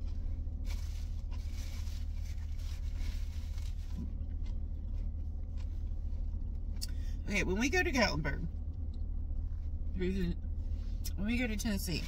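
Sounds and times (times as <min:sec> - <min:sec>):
person chewing food: 0:00.0 - 0:07.1
low hum inside car cabin: 0:00.0 - 0:12.0.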